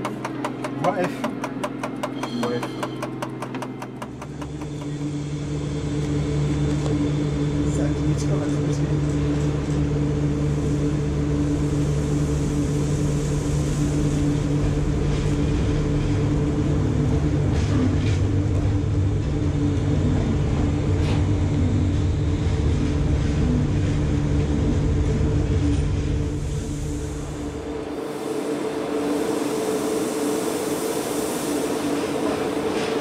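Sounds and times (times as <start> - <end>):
wheels clicking on track: 0.0 - 5.0
electric locomotive passing: 0.1 - 33.0.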